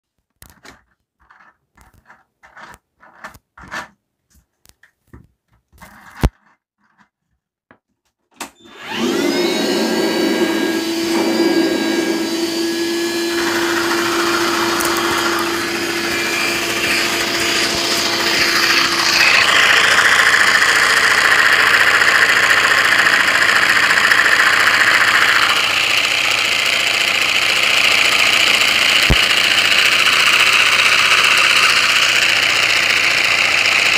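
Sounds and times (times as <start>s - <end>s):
vacuum cleaner motor whine: 8.4s - 33.9s.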